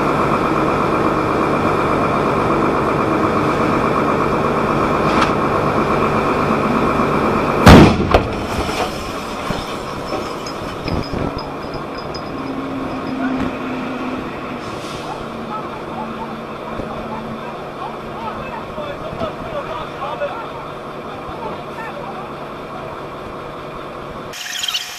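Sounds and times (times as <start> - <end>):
engine drone: 0.0 - 18.9, 19.6 - 24.9
loud explosion blast: 7.6 - 8.5.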